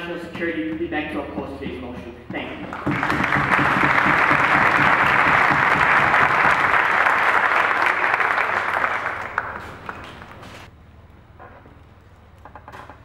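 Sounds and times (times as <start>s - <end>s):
audience applauding: 2.7s - 10.5s.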